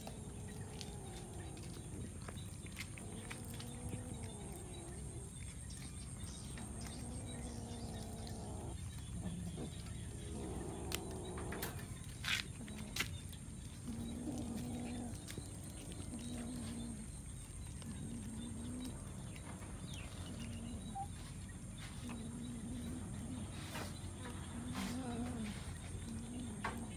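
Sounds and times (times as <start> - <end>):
cats meowing: 9.4 - 11.9.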